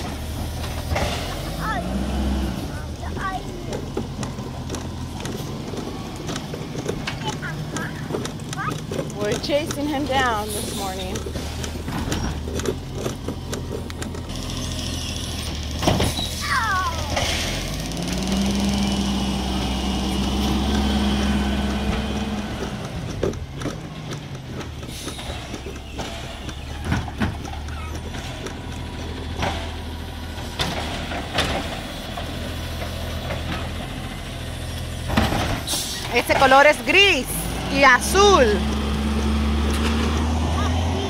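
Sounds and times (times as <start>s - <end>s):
garbage truck engine idling: 0.0s - 41.0s
scattered knocks: 3.0s - 14.6s, 19.9s - 34.4s
short falling squeal: 16.1s - 16.6s.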